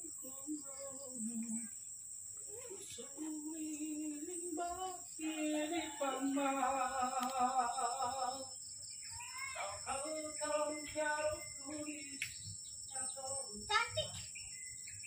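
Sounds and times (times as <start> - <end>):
person humming: 0.0 - 1.7.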